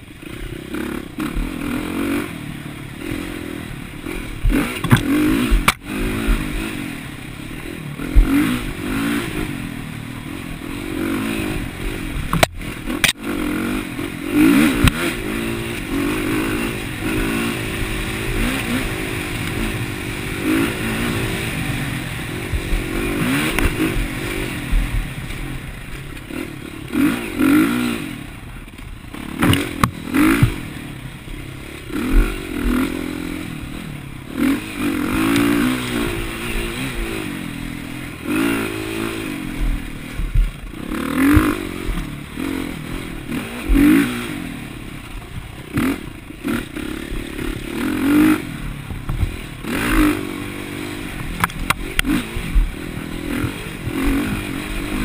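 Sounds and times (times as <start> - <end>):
dirt bike engine revving: 0.0 - 55.0
bike knocks and rattles: 4.4 - 6.5, 29.4 - 30.7.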